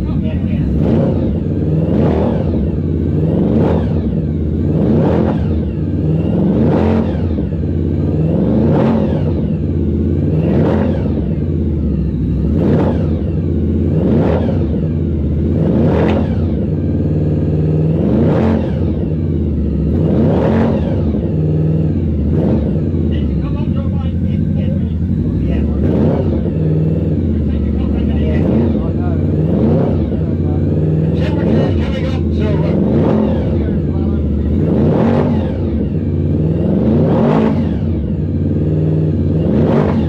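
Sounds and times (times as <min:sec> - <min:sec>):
motorcycle engine revving: 0:00.0 - 0:40.0.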